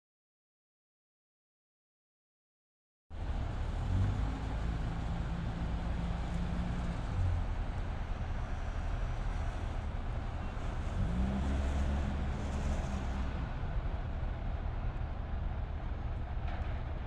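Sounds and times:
engine humming: 3.1s - 17.0s.

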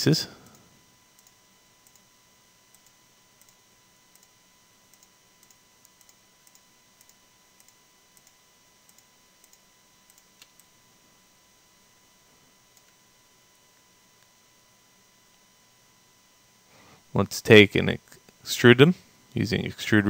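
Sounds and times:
computer mouse clicks: 0.4s - 2.1s, 2.7s - 10.7s.

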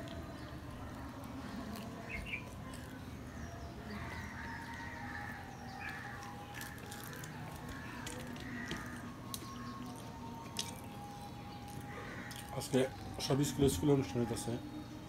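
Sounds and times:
chewing and mouth smacking: 0.0s - 3.3s, 4.0s - 13.2s
fingers tearing bread: 4.7s - 13.2s.

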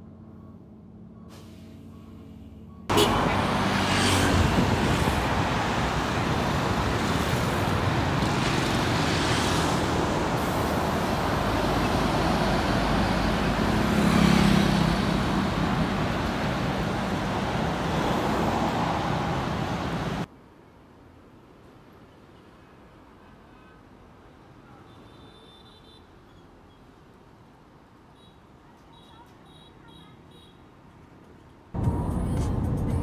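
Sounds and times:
cars passing: 0.0s - 20.3s, 31.8s - 33.0s
motorbikes passing: 2.9s - 20.3s
tyres hissing on road: 2.9s - 20.3s.

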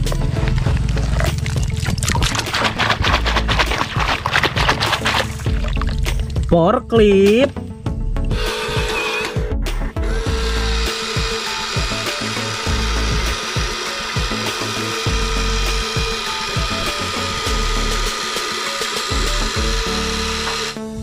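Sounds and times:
toy electric motor whirring: 8.4s - 20.8s.

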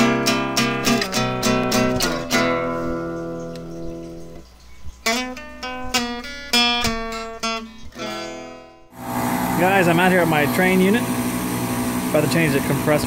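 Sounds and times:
acoustic guitar strumming: 0.0s - 4.2s, 5.1s - 13.0s.

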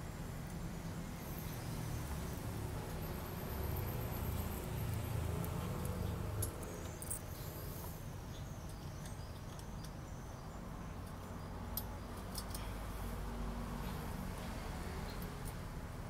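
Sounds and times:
metal fasteners clicking: 11.0s - 12.7s.

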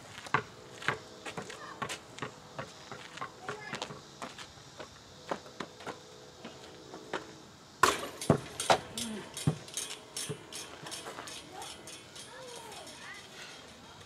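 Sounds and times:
basketball bouncing on asphalt: 0.1s - 6.0s, 7.8s - 11.9s
basketball hitting hoop bang: 7.8s - 9.6s.

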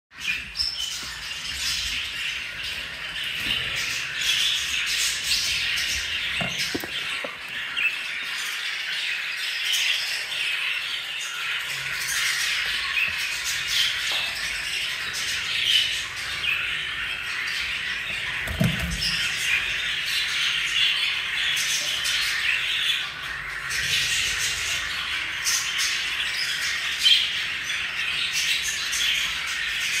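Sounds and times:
budgerigars chattering: 0.2s - 14.0s.

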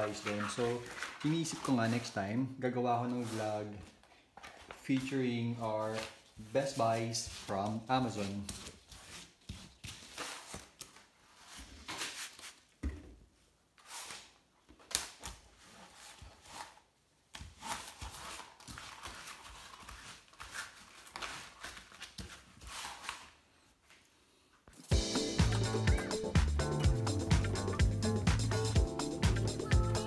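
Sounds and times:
cloth wiping plastic: 0.0s - 2.4s.

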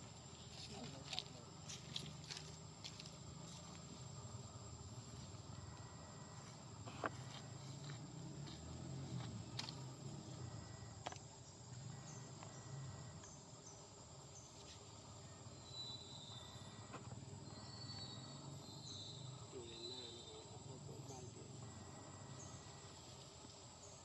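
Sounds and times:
insects droning: 0.0s - 24.0s.

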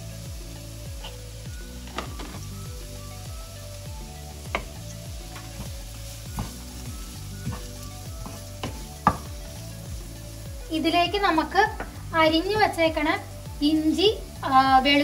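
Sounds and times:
onion sizzling in frying pan: 0.0s - 15.0s
spatula stirring: 4.4s - 10.5s.

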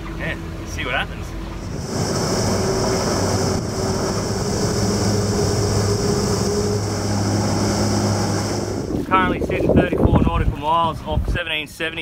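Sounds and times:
outboard motor drone: 0.0s - 9.6s
hiss of water and wind: 0.0s - 12.0s.

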